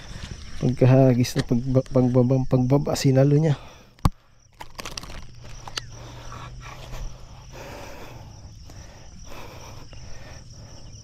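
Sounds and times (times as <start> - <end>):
sharp clicks: 4.0 - 5.9.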